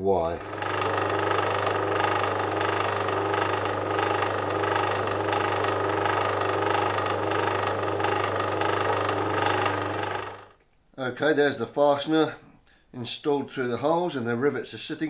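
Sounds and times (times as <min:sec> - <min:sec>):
drill motor humming: 0:00.0 - 0:10.6.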